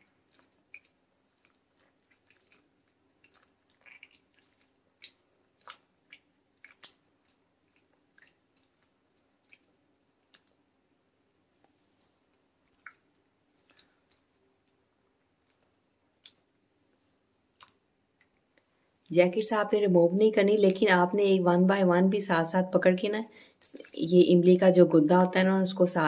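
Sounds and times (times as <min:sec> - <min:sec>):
wet squelches of pulp: 0:00.0 - 0:10.8, 0:12.2 - 0:18.7.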